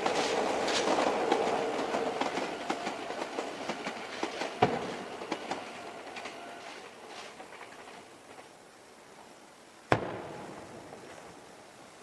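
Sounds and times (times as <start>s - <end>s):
train wheels clicking over rail joints: 0.0s - 8.8s.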